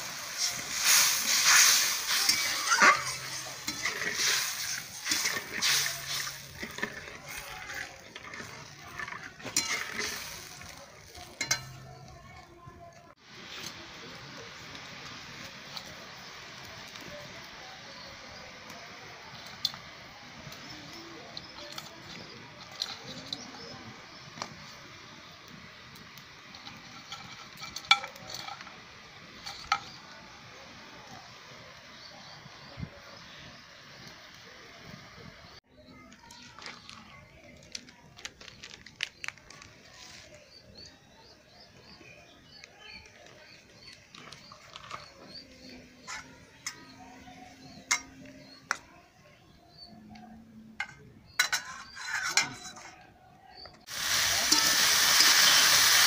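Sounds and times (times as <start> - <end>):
spatula stirring: 0.0 - 12.6
curry sizzling in a pan: 0.0 - 37.5, 53.6 - 56.0
clicks and rustles: 35.9 - 40.4.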